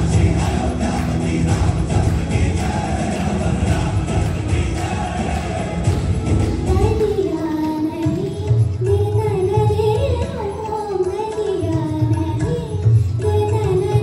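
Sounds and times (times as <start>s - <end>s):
backing track with drum beat: 0.0s - 14.0s
woman singing: 6.5s - 14.0s.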